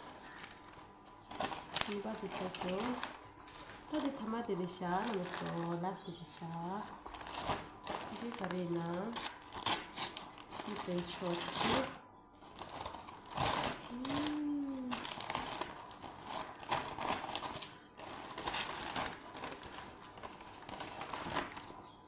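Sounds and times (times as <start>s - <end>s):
paper packaging rustling: 0.0s - 22.0s
person humming: 13.8s - 15.3s.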